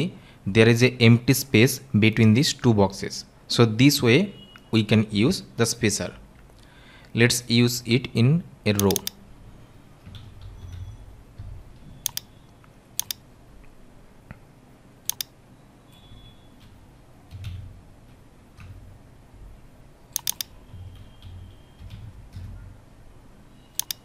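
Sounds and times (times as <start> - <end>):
keyboard typing: 8.7 - 9.2, 10.0 - 12.3, 13.0 - 13.2, 15.1 - 15.3, 16.6 - 18.8, 20.1 - 22.6, 23.8 - 24.0
sharp key or mouse clicks: 8.8 - 9.2, 12.0 - 12.3, 13.0 - 13.2, 15.1 - 15.3, 20.2 - 20.5, 23.8 - 24.0.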